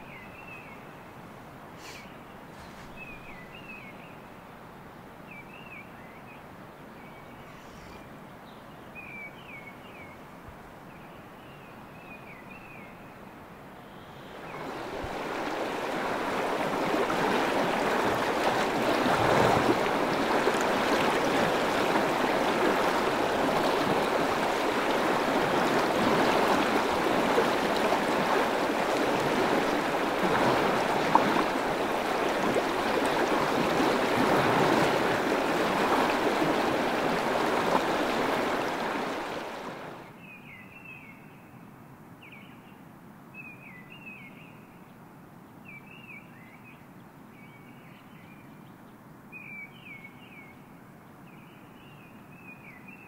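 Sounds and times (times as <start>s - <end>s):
fast-flowing water rushing: 14.3s - 40.1s.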